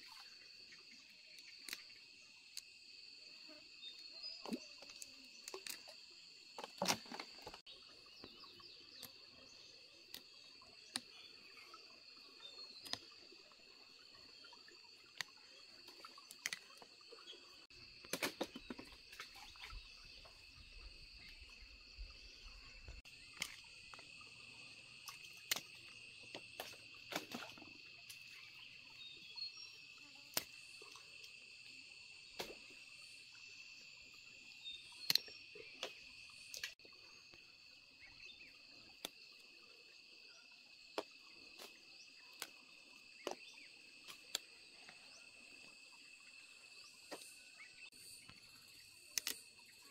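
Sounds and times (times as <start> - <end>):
insects droning: 0.0 - 49.9
clicks and snaps of figs picked: 25.0 - 25.8, 35.0 - 35.9, 49.1 - 49.4.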